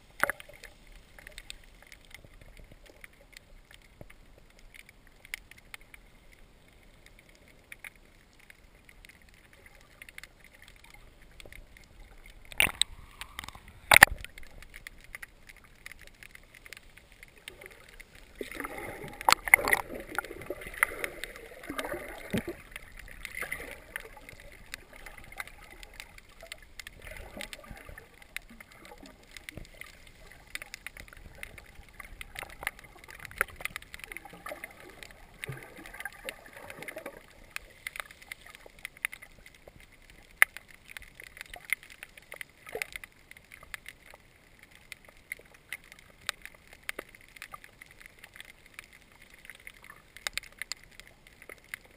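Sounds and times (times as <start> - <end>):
muffled water sloshing underwater: 0.0 - 51.9
water churning and bubbling: 0.0 - 51.9.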